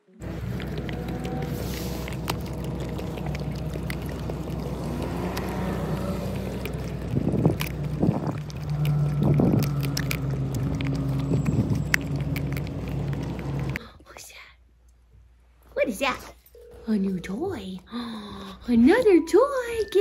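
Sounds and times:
low car hum: 0.0 - 13.8
dog licking wetly: 0.3 - 13.8.

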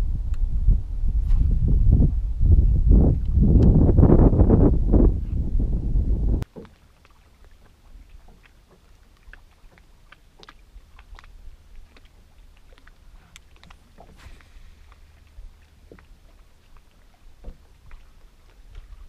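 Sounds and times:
faint low rumble: 0.0 - 6.4, 7.0 - 19.0
wind buffeting microphone: 0.0 - 6.5
water lapping against boat: 6.4 - 19.0.

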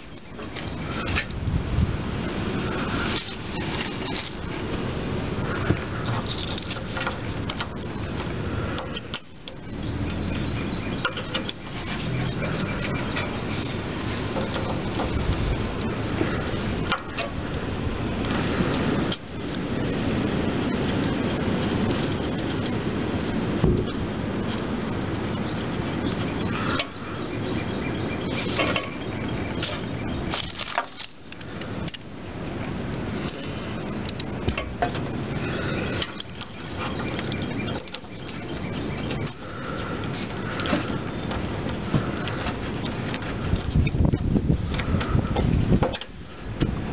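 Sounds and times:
rustling rub near microphone: 0.0 - 7.3
plastic rubbing and scraping: 2.7 - 4.7.

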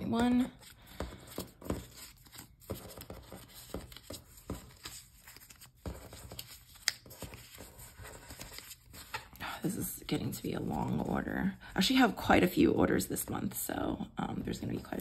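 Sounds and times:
paper cards rustling: 0.0 - 9.4.

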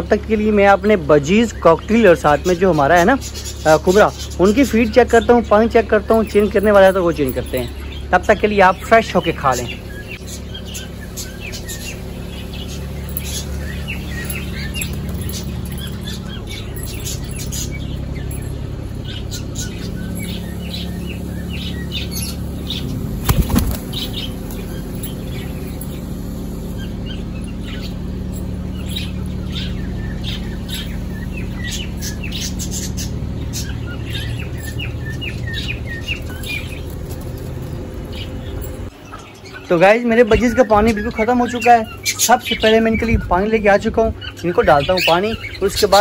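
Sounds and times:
small birds chirping: 0.0 - 46.0
pigeon wings flapping: 23.2 - 24.6.

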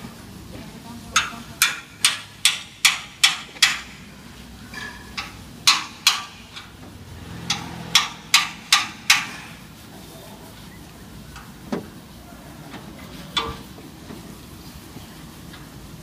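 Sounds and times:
hammer blows: 4.8 - 9.7.

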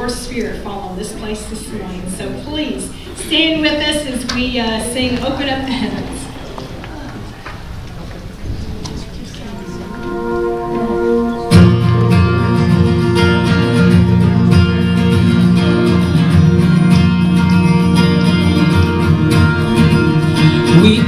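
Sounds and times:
band playing worship music: 9.4 - 21.0
held chords: 9.4 - 21.0.

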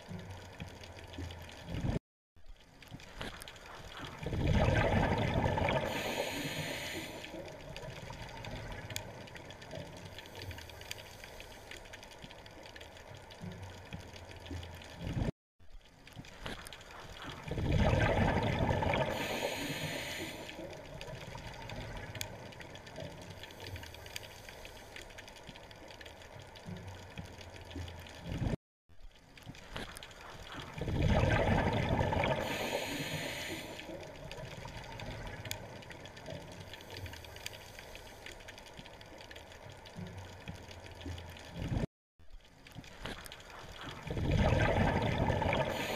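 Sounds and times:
underwater rushing bubbles: 3.9 - 9.8, 17.2 - 23.3, 30.3 - 36.8, 43.5 - 45.9
watery hiss: 4.0 - 9.1, 17.2 - 22.4, 30.2 - 35.6, 43.4 - 45.9.

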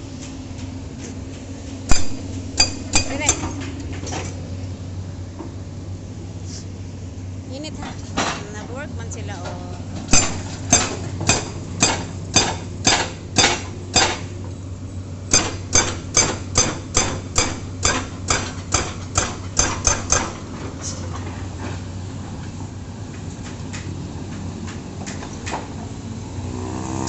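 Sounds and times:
low engine hum: 0.0 - 19.6, 20.3 - 27.0
hydraulic breaker hammering: 1.9 - 3.7, 10.1 - 14.3, 15.3 - 20.6.

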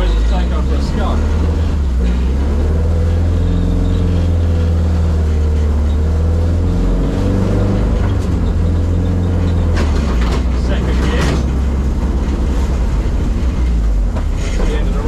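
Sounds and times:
car engine droning: 0.0 - 15.0.

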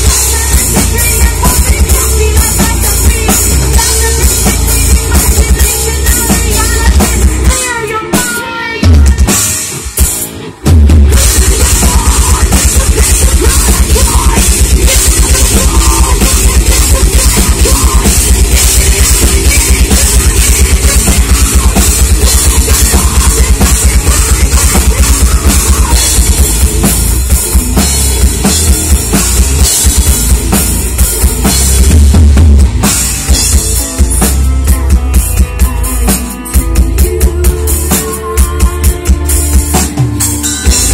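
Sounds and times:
pounding bass drum: 0.0 - 7.6, 8.8 - 40.9
person singing into a microphone: 0.0 - 9.7, 11.1 - 27.0, 33.3 - 40.9
distorted guitars and bass: 0.0 - 40.9
rapid dense drumming: 0.0 - 40.9.

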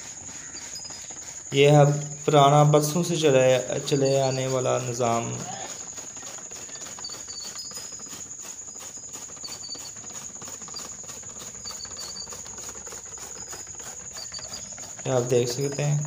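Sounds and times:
insect chirring: 0.0 - 16.0
iron gear clicking and rattling: 0.0 - 16.0.

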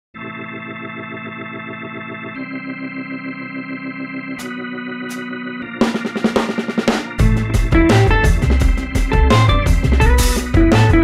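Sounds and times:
held keyboard chords: 0.2 - 11.0.

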